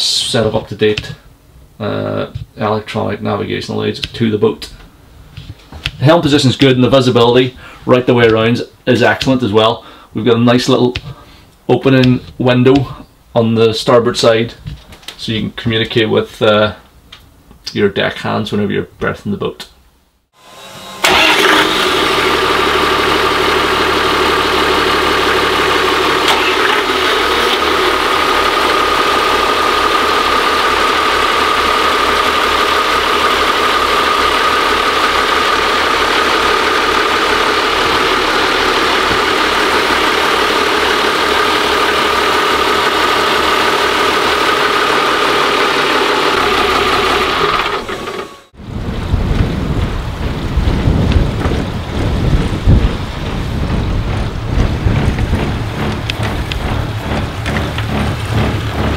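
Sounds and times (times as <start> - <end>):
steady engine whine: 20.4 - 48.8, 50.0 - 58.9
diesel engine idling: 21.0 - 48.6, 52.8 - 58.9.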